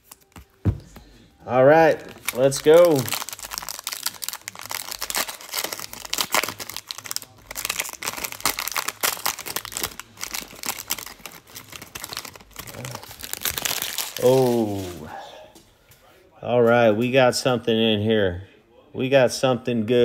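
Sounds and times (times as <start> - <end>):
plastic wrapper crinkling: 0.0 - 15.1.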